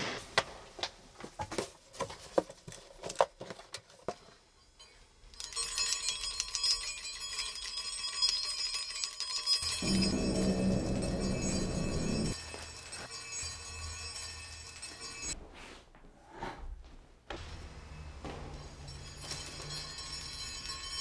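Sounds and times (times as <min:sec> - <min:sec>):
shrill fluttering bell ringing: 0:04.8 - 0:15.4, 0:18.6 - 0:21.0.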